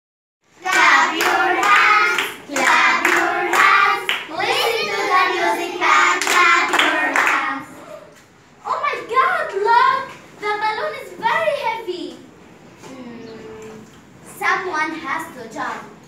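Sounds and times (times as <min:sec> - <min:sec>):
children singing: 0:00.6 - 0:07.8
hand clapping: 0:00.7 - 0:04.3, 0:06.2 - 0:07.4.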